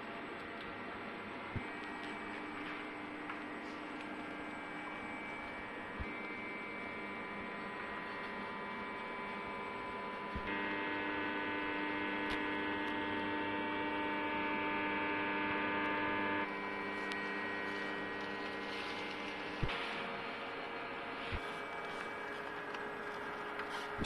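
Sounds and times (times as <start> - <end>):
machine electric hum with whining tones: 0.0 - 24.0
click: 12.2 - 13.0.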